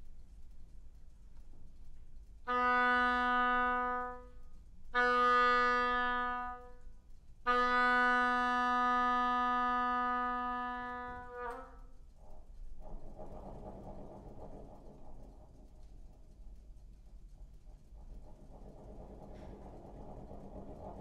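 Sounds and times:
oboe low note: 2.5 - 6.8, 7.5 - 11.8.

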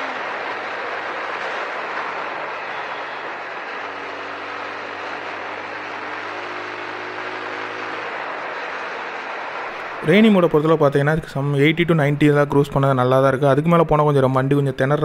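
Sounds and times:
motorcycle engine: 0.0 - 10.2.

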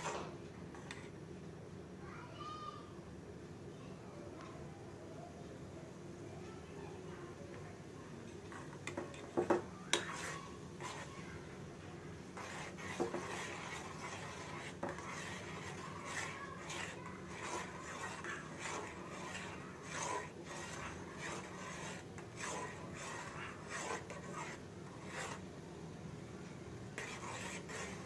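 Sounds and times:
metal spoon scraping a pan: 0.0 - 1.1, 8.5 - 11.4, 12.3 - 25.5, 27.0 - 28.0
noodles boiling: 0.0 - 1.4, 7.5 - 28.0.

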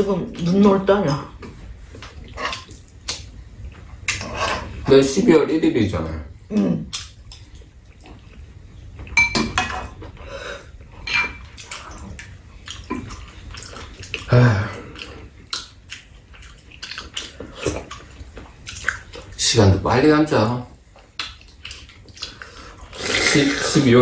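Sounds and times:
people slurping and chewing soup: 0.3 - 5.0, 6.4 - 19.8, 20.8 - 24.0
spoons clinking against ceramic bowls: 9.2 - 9.9, 11.0 - 11.4.

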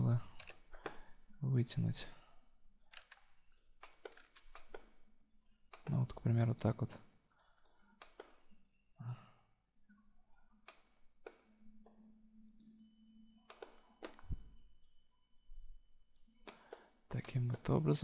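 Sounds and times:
computer mouse clicks: 2.9 - 5.0, 7.3 - 8.6, 10.6 - 11.5, 13.4 - 14.4, 16.1 - 17.7.

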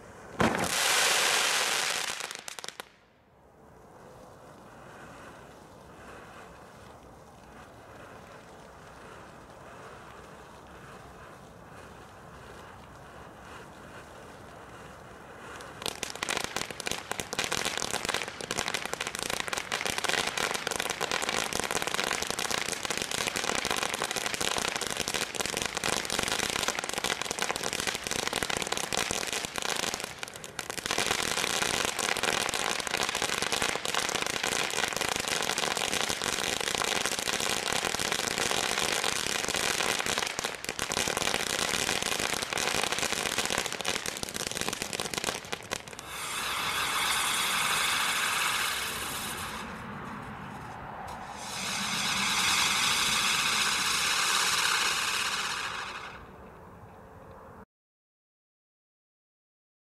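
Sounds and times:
fireworks crackling: 0.0 - 3.1, 3.7 - 56.5.

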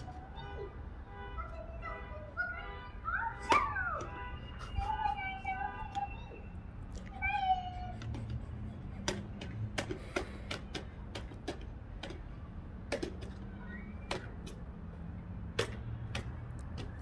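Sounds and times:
child's high-pitched vocal sound: 0.0 - 9.2.

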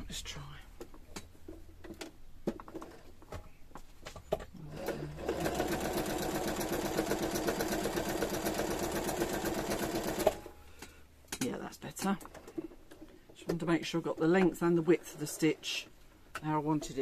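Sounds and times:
sewing machine stitching: 4.6 - 10.5.

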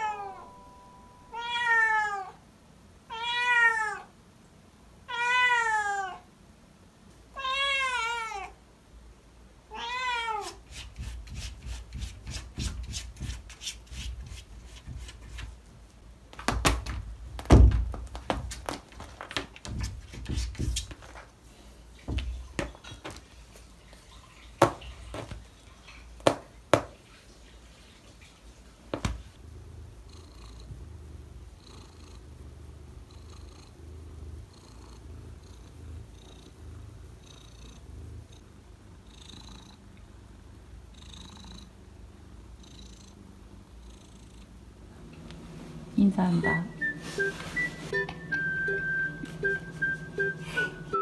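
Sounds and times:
cat knocking at a wooden door: 16.4 - 21.0
cat purring: 29.2 - 45.2
soft rustles of fur: 45.4 - 47.9.

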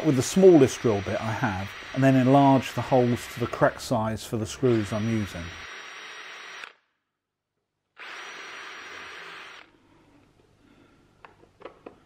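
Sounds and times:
cordless drill whining: 4.4 - 6.8, 8.0 - 9.7.

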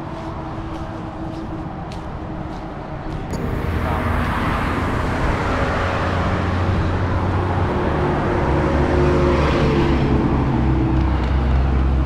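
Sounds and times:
vehicles passing close by: 0.0 - 12.0
low engine drone: 3.3 - 11.2.

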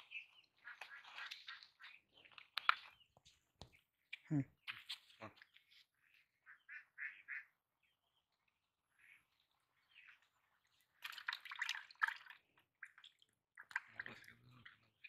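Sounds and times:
water splashing in plastic bucket: 10.9 - 14.9.

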